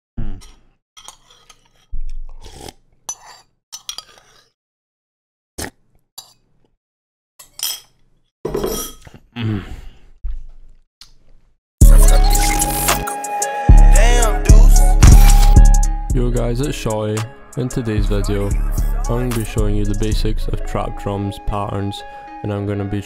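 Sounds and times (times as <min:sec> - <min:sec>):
deep boom: 0:14.9 - 0:15.8.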